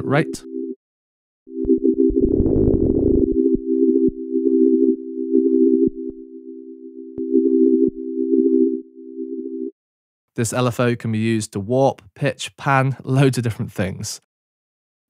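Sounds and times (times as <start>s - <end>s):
synthesizer note pulsing: 1.5s - 9.7s.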